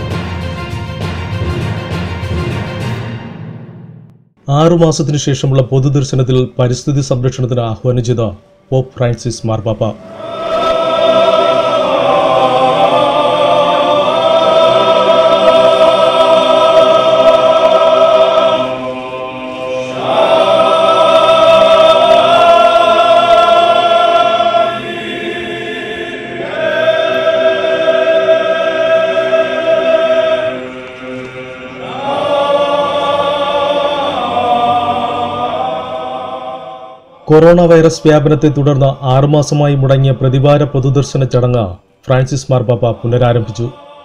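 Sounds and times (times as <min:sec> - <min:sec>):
choir singing slow chant: 0:09.9 - 0:38.3, 0:42.5 - 0:44.0.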